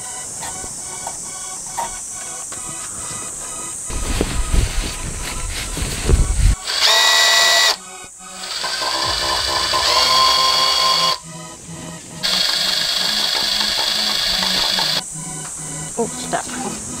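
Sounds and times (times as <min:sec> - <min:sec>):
electric drill motor whining: 0:06.2 - 0:11.3, 0:12.2 - 0:15.1.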